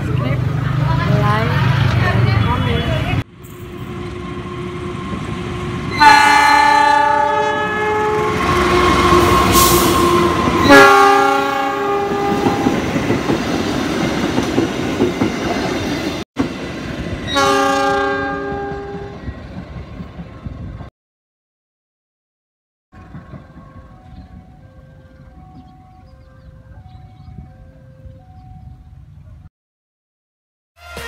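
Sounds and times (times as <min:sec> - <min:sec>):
train rumble and wheel clatter: 0:00.0 - 0:20.9, 0:23.0 - 0:29.4
locomotive multi-tone horn: 0:02.4 - 0:12.9, 0:17.3 - 0:19.2, 0:30.8 - 0:31.0.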